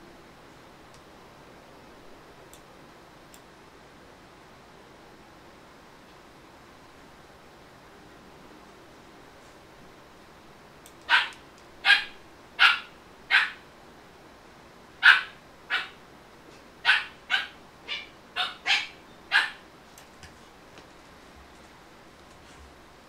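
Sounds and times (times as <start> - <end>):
dog barking: 11.1 - 13.6, 15.0 - 16.0, 16.8 - 19.6.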